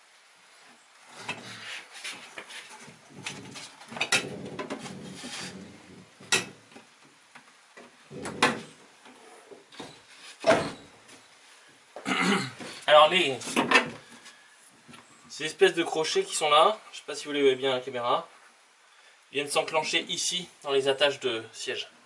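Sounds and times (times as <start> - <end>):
wooden panel scraping: 1.1 - 6.9
sharp wooden knocks: 8.2 - 8.7.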